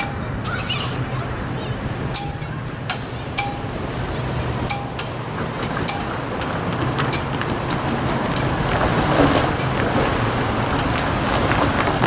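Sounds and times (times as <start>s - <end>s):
cars passing: 0.0s - 12.0s.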